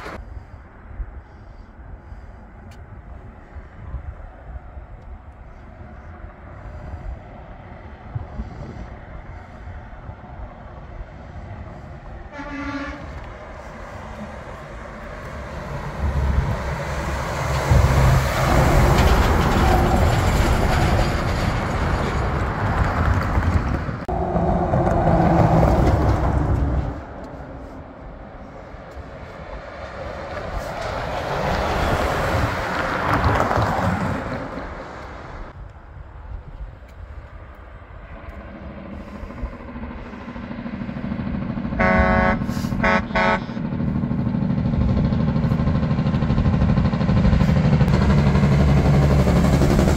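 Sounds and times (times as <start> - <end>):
large vehicle passing: 5.5 - 35.6, 37.4 - 49.9
horn toot: 12.3 - 13.3, 41.8 - 43.6.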